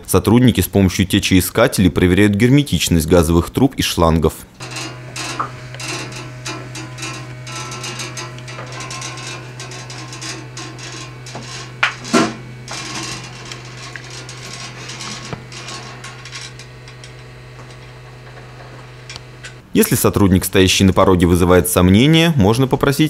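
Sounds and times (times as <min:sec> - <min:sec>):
steady low hum: 0:04.5 - 0:21.4
metal probe scraping metal hose: 0:04.6 - 0:19.6.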